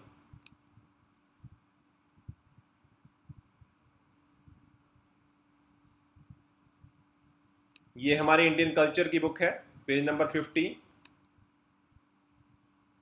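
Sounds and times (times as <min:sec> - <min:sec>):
faint steady hum: 0:00.0 - 0:13.0
faint clicks: 0:01.3 - 0:01.6, 0:02.6 - 0:02.9, 0:05.0 - 0:05.3.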